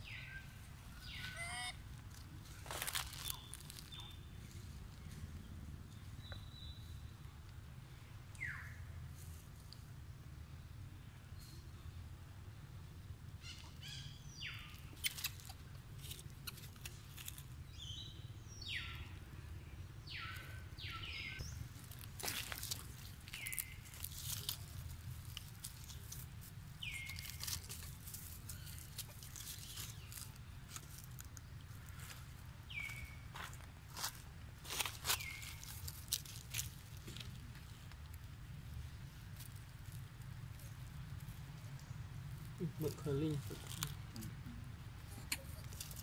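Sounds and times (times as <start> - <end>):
high sliding animal calls: 1.1 - 1.8.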